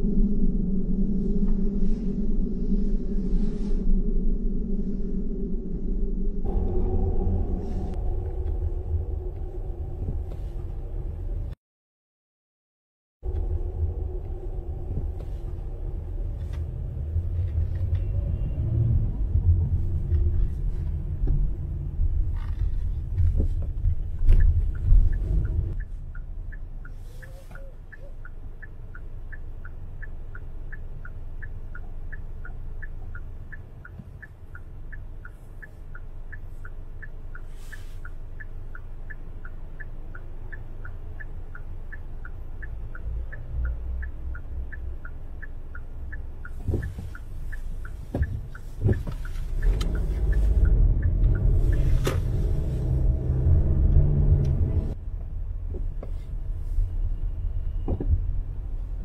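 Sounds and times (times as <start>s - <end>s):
heavy low traffic rumble: 0.0s - 11.6s, 13.2s - 59.0s
quiet street noise: 13.2s - 59.0s.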